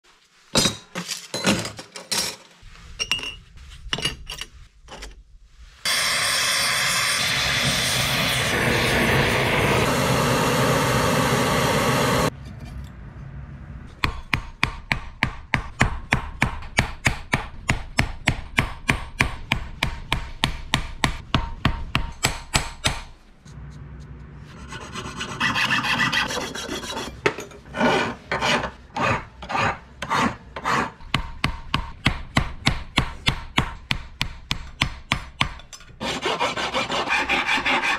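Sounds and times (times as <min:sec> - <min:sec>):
loud rushing noise: 0:05.9 - 0:12.3
hammer striking copper bar: 0:14.0 - 0:23.1, 0:31.1 - 0:35.8
metal file rasping: 0:24.5 - 0:31.3, 0:36.0 - 0:37.9.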